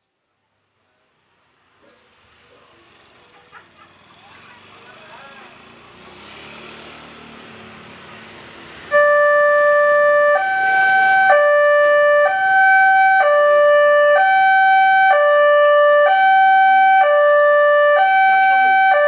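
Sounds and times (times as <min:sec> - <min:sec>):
level crossing two-tone alarm: 0:08.9 - 0:19.0.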